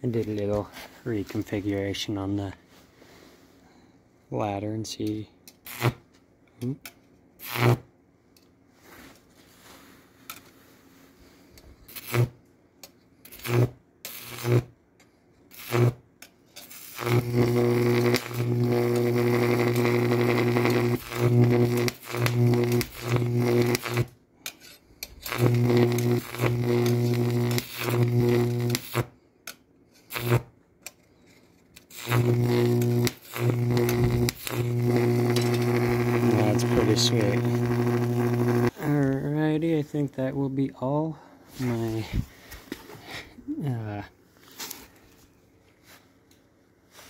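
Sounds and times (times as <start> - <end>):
mains hum: 0.0 - 47.0
electric arc snapping: 5.5 - 6.0, 7.4 - 7.8, 11.9 - 12.4, 13.3 - 14.7, 15.5 - 16.0, 16.6 - 24.1, 25.2 - 29.1, 30.1 - 30.5, 31.8 - 38.8
high-voltage arc buzzing: 5.6 - 6.1, 7.4 - 7.9, 11.9 - 12.4, 13.3 - 14.7, 15.5 - 16.0, 16.6 - 24.1, 25.2 - 29.1, 30.1 - 30.5, 31.8 - 39.0.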